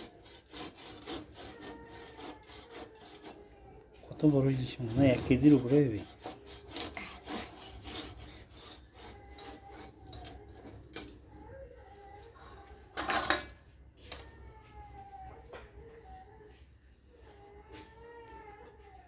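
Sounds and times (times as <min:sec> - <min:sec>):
knife scraping fish scales: 0:00.0 - 0:03.4, 0:04.2 - 0:10.7.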